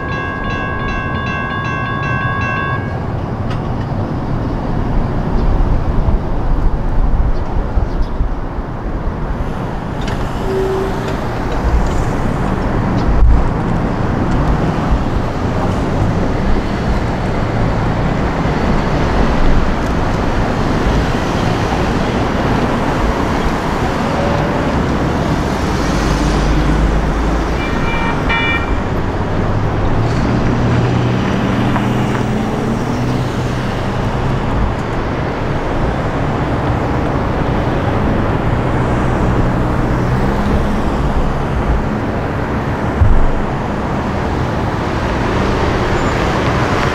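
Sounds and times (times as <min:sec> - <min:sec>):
road traffic rumbling past: 0:00.0 - 0:46.9
short high horn-like tone: 0:10.4 - 0:11.2.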